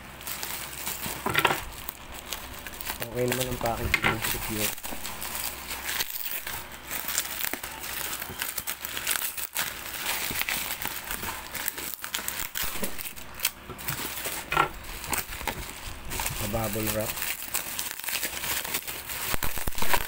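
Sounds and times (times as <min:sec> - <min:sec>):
bubble wrap crinkling: 0:00.0 - 0:20.0.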